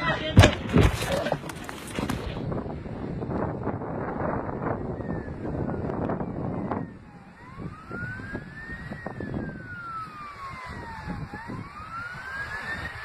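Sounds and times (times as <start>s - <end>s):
wind rumble on microphone: 0.0s - 13.0s
emergency siren wailing: 3.6s - 13.0s.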